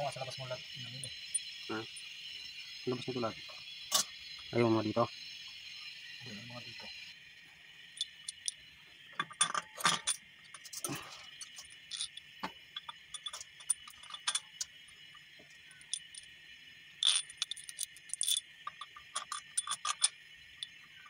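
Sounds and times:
steady high hiss: 0.0s - 21.0s
steel nuts and washers clinking: 7.9s - 14.8s, 15.6s - 16.3s, 17.0s - 20.8s.

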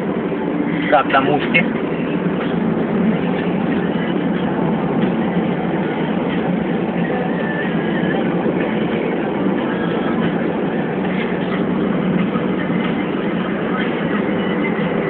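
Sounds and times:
car cabin road noise: 0.0s - 15.0s
tyres on wet road: 0.0s - 15.0s.

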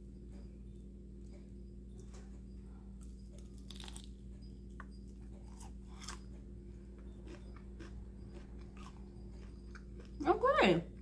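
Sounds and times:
crunchy biting and chewing: 3.0s - 10.2s.

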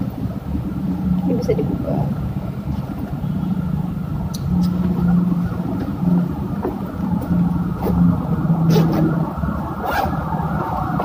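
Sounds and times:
low motor hum: 0.0s - 11.0s
zip and fabric clicks: 8.7s - 9.1s, 9.8s - 10.1s.

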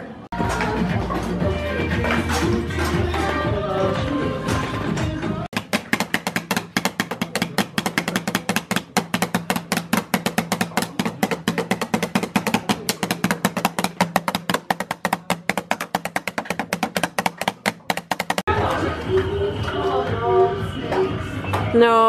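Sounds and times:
drumsticks tapping on drum pad: 5.5s - 18.5s.

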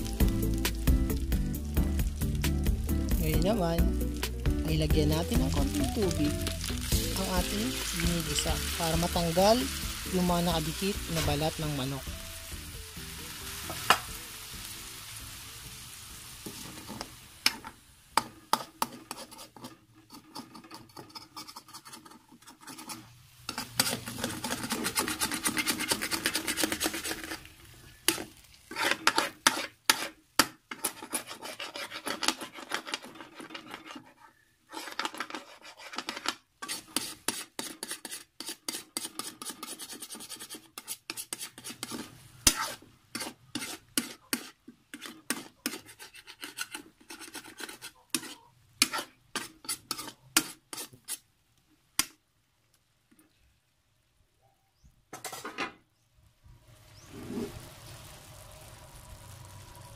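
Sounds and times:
food sizzling: 0.0s - 53.5s, 55.2s - 59.9s
metal ladle scraping a wok: 5.3s - 12.3s, 16.4s - 51.2s, 55.2s - 55.6s.

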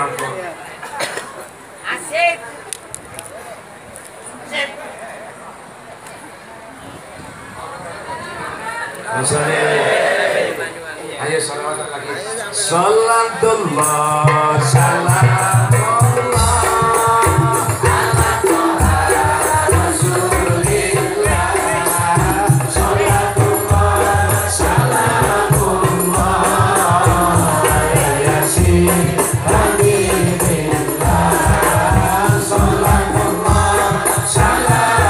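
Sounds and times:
man and woman singing: 13.1s - 35.0s
jingling percussion: 13.7s - 35.0s
frame drums beating: 14.2s - 35.0s.

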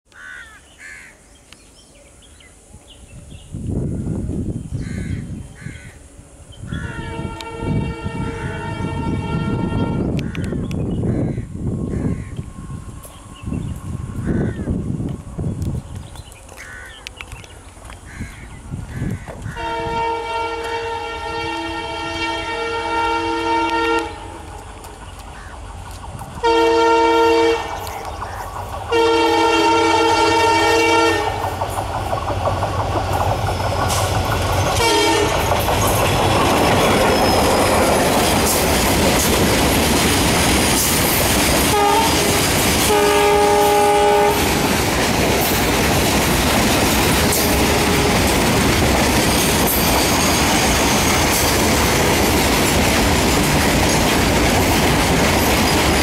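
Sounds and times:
locomotive two-note air horn: 6.8s - 10.2s, 19.5s - 24.4s, 26.4s - 27.9s, 28.9s - 31.4s, 34.8s - 35.5s, 41.6s - 44.7s
train wheels clattering on rails: 23.3s - 56.0s.

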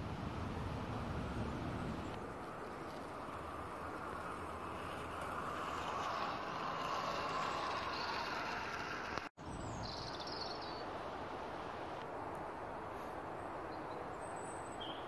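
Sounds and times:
model train whirring on rails: 0.0s - 9.4s
outdoor background noise: 0.0s - 15.0s.

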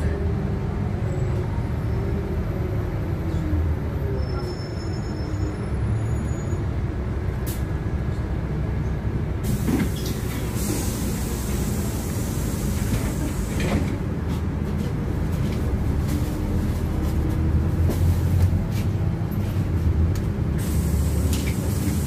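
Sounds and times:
bus engine drone: 0.0s - 22.0s
tyres hissing on wet road: 9.4s - 13.9s, 20.5s - 22.0s.

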